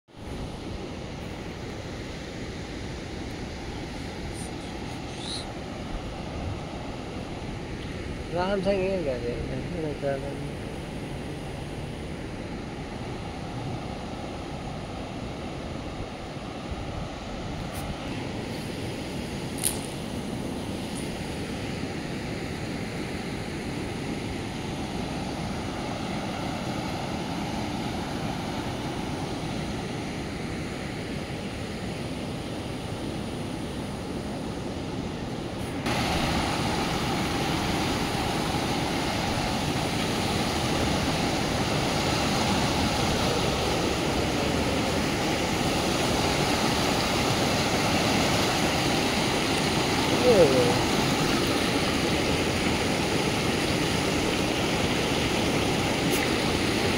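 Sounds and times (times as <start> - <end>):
floodwater rushing over rocks: 35.7 - 56.9.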